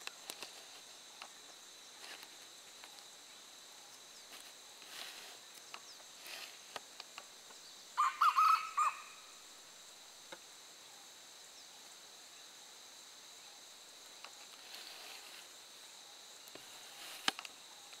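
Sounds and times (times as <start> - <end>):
rooster crowing: 8.0 - 9.2.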